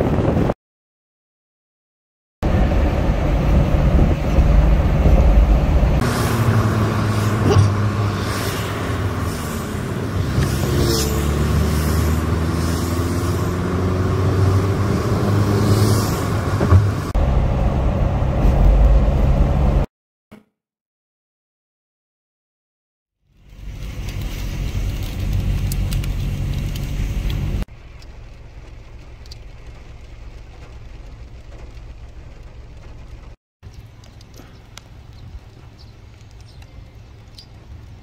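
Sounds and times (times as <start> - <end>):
car engine and road rumble: 2.4 - 19.9, 23.2 - 38.0
tyres hissing on wet road: 2.5 - 17.4, 23.3 - 38.0.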